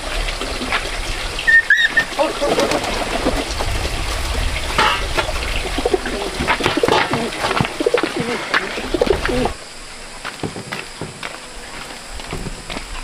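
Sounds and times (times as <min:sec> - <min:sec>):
outdoor background: 0:00.0 - 0:13.0
pigeons cooing: 0:01.2 - 0:09.6
bamboo basket knocks and rustles: 0:10.3 - 0:11.4, 0:12.2 - 0:12.9.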